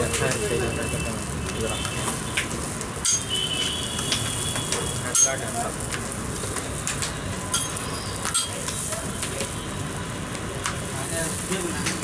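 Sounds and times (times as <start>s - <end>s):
flatbread sizzling on griddle: 0.0s - 12.0s
metal spatula striking griddle: 2.4s - 5.5s.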